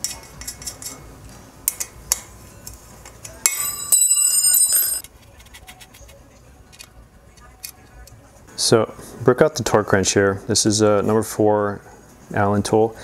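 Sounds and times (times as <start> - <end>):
bright metallic ringing: 3.4 - 5.0.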